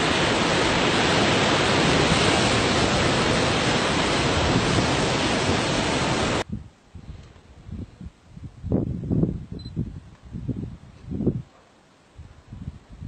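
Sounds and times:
ocean surf rushing: 0:00.0 - 0:06.4.

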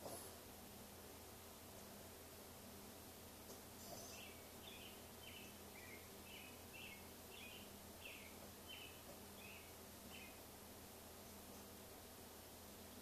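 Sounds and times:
faint high bird chirps: 0:03.8 - 0:10.5.

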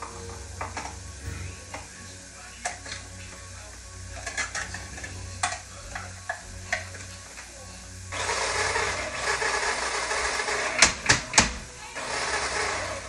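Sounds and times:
steady low hum: 0:00.0 - 0:08.2
faint sizzle of frying food: 0:00.0 - 0:12.9.

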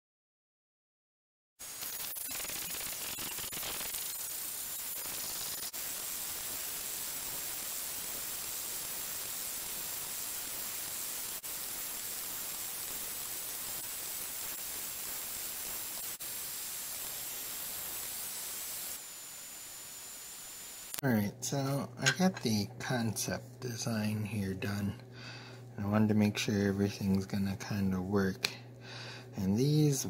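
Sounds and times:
static-like hiss: 0:01.6 - 0:25.0.

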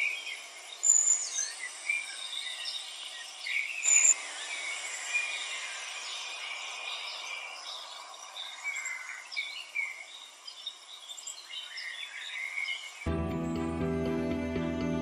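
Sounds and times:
background music: 0:13.1 - 0:15.0.

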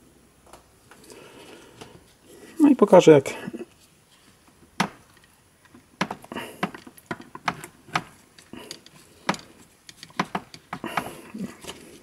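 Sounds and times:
plastic parts clicking: 0:04.8 - 0:11.8.

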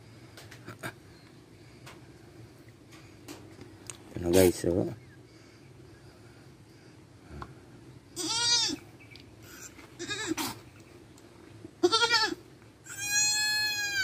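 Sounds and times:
goat bleating: 0:08.2 - 0:08.8, 0:09.6 - 0:10.6, 0:11.8 - 0:14.0.

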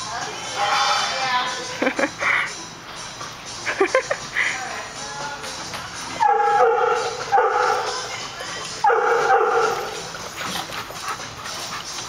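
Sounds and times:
dogs play-wrestling: 0:05.6 - 0:12.0
dog whining barks: 0:06.2 - 0:07.9, 0:08.8 - 0:10.1.

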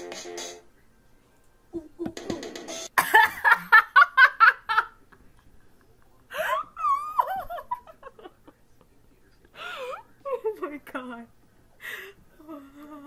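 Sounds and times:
girl laughing: 0:03.0 - 0:05.0, 0:06.4 - 0:08.4.

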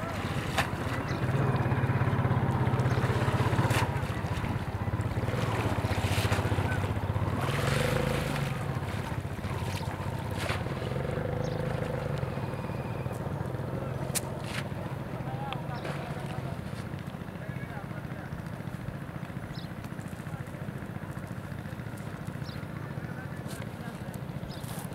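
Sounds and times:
person wading through water: 0:00.0 - 0:17.3
small engine droning: 0:00.0 - 0:24.9.

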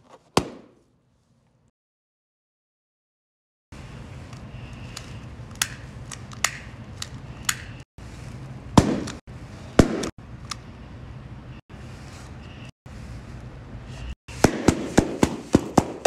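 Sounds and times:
balloons bursting: 0:14.3 - 0:16.0.

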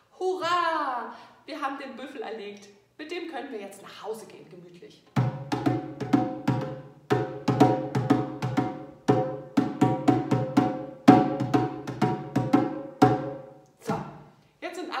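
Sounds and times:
djembe hand drumming: 0:05.2 - 0:14.2.

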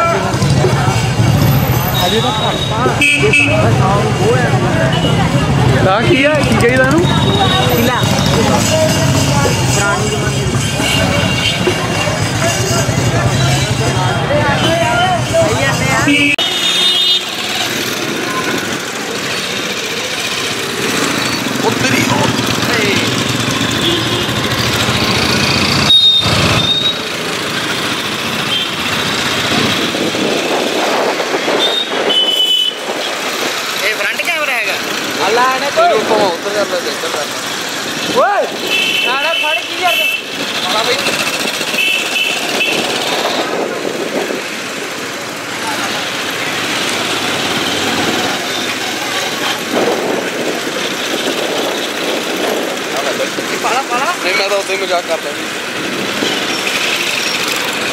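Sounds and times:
motorcycle engine and road noise: 0:00.0 - 0:57.9
high squeals: 0:23.1 - 0:27.2.

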